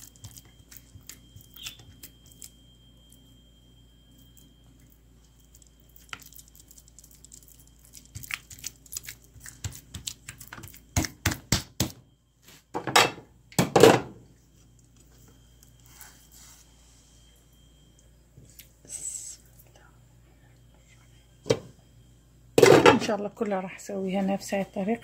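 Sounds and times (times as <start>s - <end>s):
hands patting meat onto dough: 6.0s - 12.0s.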